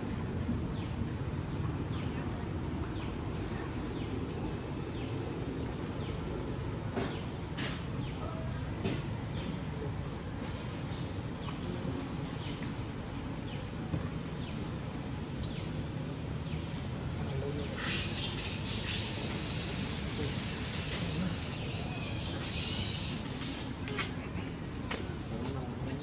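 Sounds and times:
high-pitched insect drone: 0.0 - 26.0.

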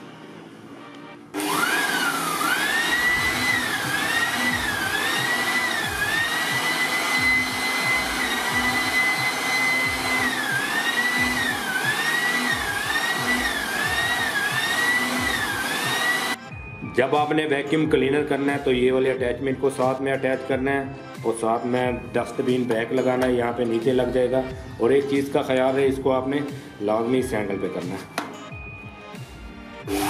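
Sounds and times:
electric air blower motor whine: 1.3 - 16.4.

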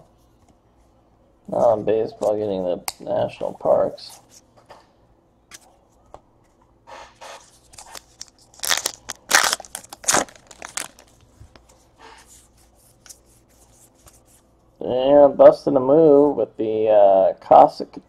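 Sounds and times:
cards flipping and scraping: 7.2 - 11.1.

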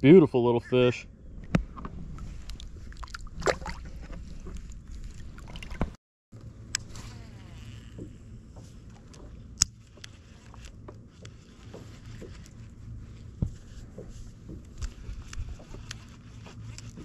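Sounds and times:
fishing gear clicks and knocks: 6.8 - 17.0.

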